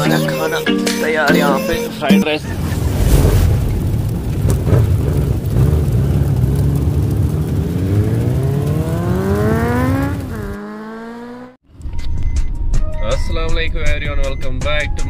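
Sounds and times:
engine revving rising in pitch: 4.5s - 11.6s.

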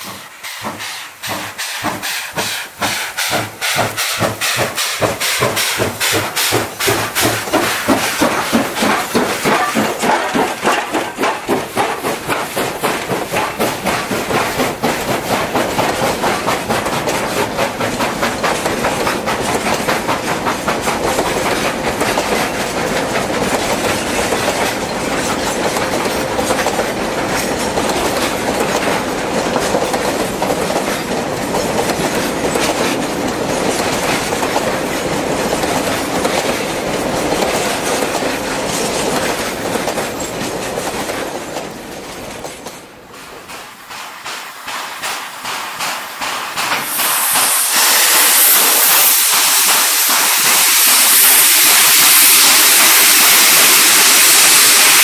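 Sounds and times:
steam hissing: 0.0s - 29.3s, 43.2s - 55.0s
train wheels clattering over rail joints: 0.0s - 55.0s.

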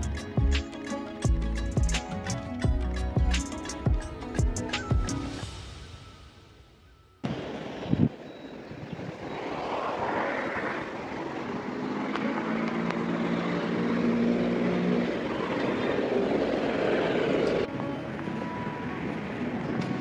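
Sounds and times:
rushing outdoor background noise: 0.0s - 20.0s
distant engine droning: 7.2s - 20.0s.

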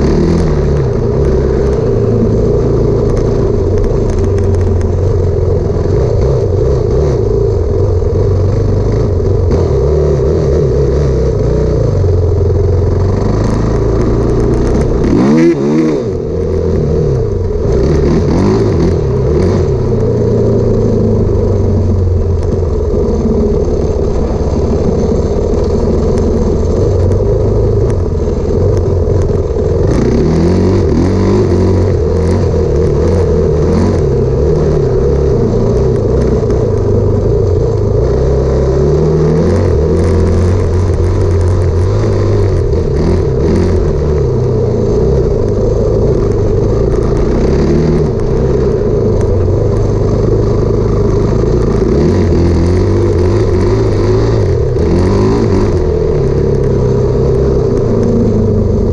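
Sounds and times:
motorcycle engine running: 0.0s - 58.9s.

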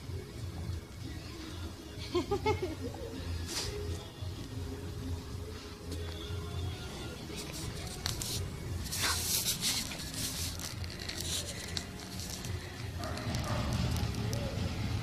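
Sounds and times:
handling noise rustling: 7.3s - 14.5s.

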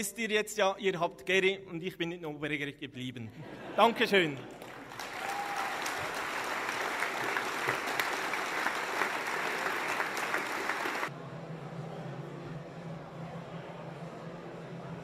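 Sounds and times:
audience applauding: 4.2s - 11.1s.

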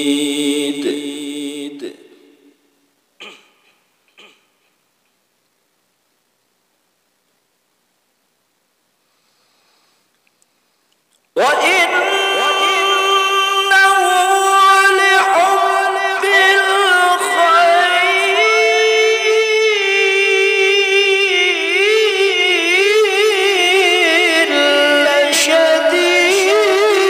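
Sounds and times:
man reciting in melodic chant: 0.0s - 2.6s, 11.3s - 27.0s.

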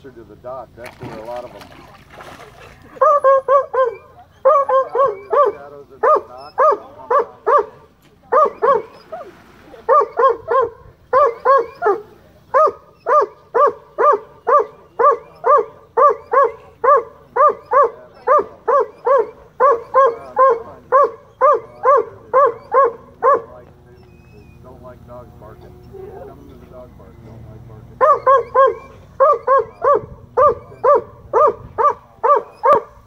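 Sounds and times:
dog barking high-pitched: 3.0s - 8.9s, 9.9s - 12.0s, 12.6s - 23.5s, 28.0s - 33.0s.

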